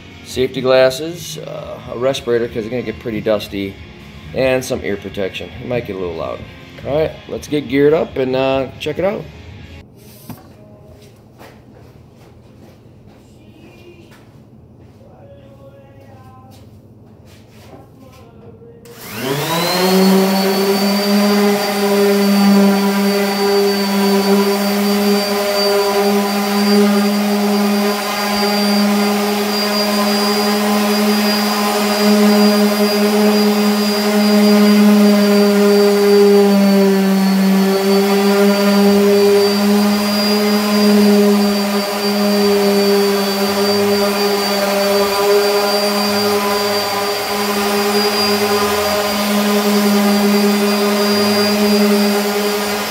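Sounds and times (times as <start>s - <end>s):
orbital sander whining: 18.9s - 52.9s
sanding wood: 19.0s - 52.9s.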